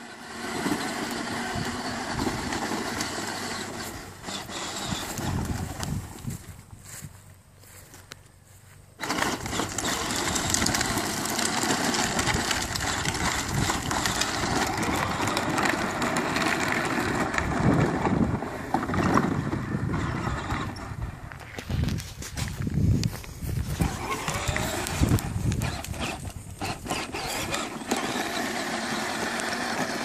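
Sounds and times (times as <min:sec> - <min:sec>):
plastic wheels crunching on gravel: 0:00.0 - 0:30.0.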